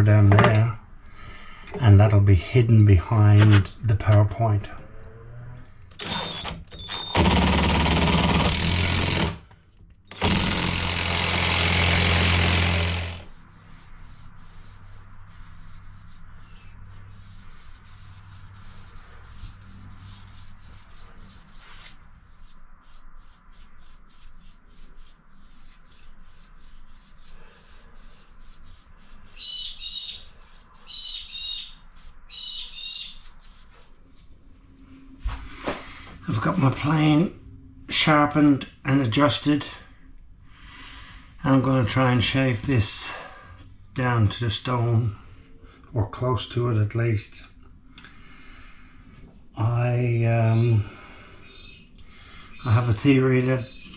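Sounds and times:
cordless drill driving screw: 6.0 - 9.4, 10.1 - 13.3.

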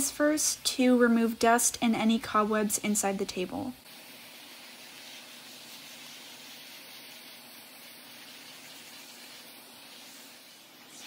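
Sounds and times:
vacuum cleaner suction hiss: 3.4 - 11.0.

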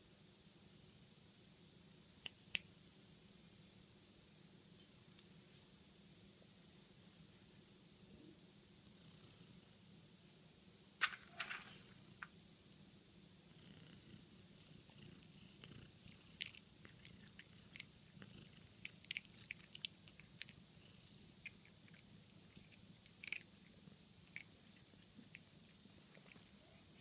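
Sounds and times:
cat crunching dry treats: 15.7 - 20.7, 21.4 - 25.5.

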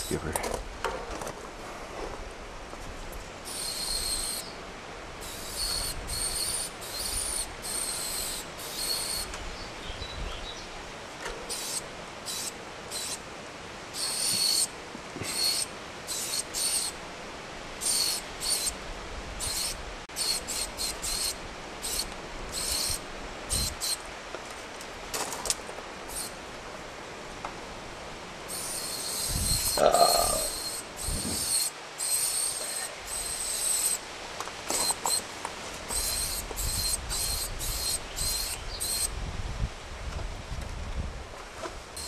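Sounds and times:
spray paint can hissing: 3.5 - 4.4, 5.2 - 9.2, 14.0 - 14.7, 19.4 - 24.0, 26.1 - 26.4, 28.5 - 34.0, 35.9 - 39.1.

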